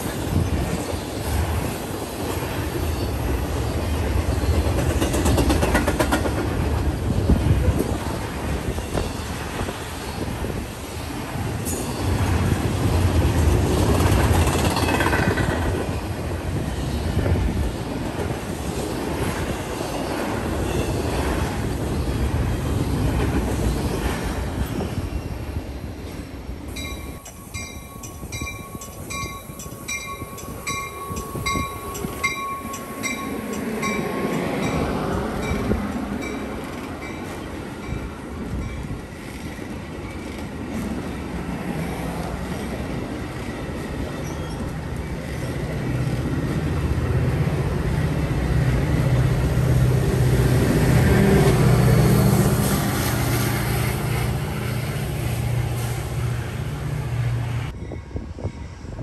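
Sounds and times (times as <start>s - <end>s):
diesel locomotive engine drone: 0.0s - 59.0s
train wheels rolling on rail: 0.0s - 59.0s
bell ringing: 26.7s - 34.9s.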